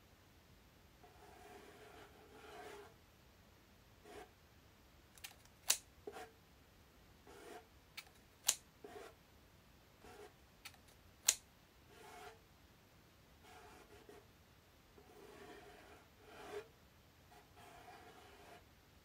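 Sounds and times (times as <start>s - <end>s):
scissors snipping paper: 5.2s - 5.8s, 10.6s - 11.4s.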